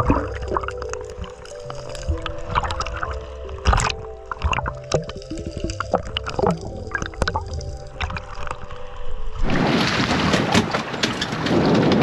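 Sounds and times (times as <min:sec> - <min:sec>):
underwater clicks and pops: 0:00.0 - 0:08.8
low underwater tones: 0:00.0 - 0:10.8
water splashing: 0:00.0 - 0:11.6.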